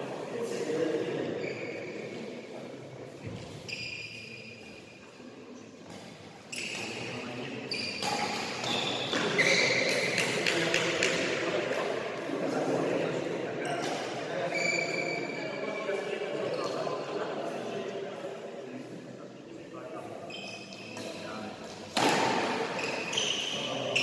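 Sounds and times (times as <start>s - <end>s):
sports shoes squeaking on court: 1.2s - 2.1s, 3.2s - 5.0s, 5.9s - 10.6s, 13.6s - 15.8s, 20.2s - 21.2s, 21.9s - 24.0s
racket striking shuttlecock: 21.9s - 22.7s.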